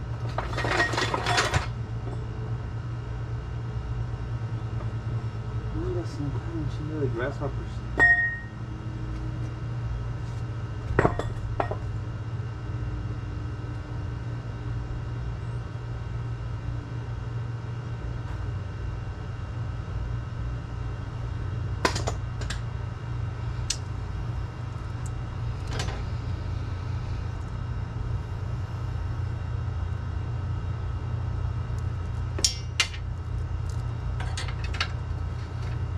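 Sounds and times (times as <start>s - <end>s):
low mechanical hum: 0.0s - 35.9s.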